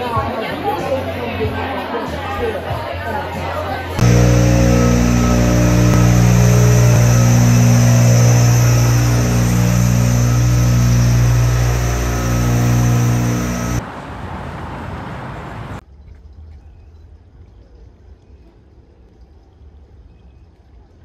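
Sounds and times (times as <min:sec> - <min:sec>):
city street noise: 0:00.0 - 0:15.8
truck engine running: 0:04.0 - 0:13.8.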